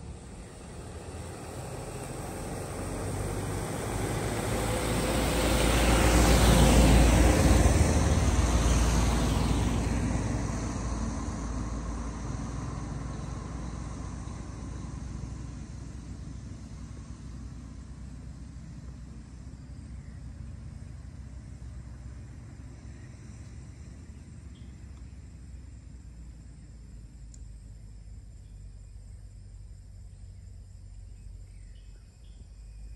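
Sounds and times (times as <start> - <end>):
vehicle passing by: 0.0 - 24.8.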